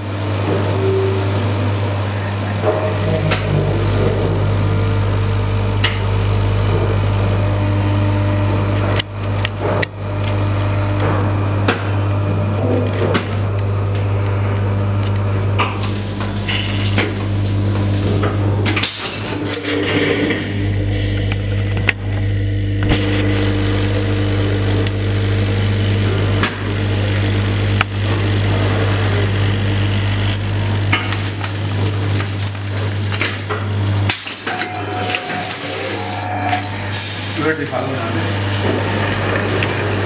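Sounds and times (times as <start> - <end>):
vibratory feeder humming: 0.0 - 40.0
hiss of granules running: 23.0 - 33.2, 36.8 - 40.0.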